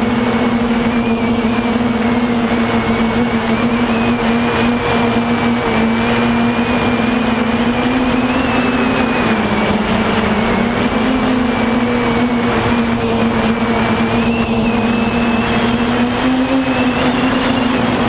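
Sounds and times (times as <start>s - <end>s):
quadcopter propellers buzzing: 0.0s - 18.0s.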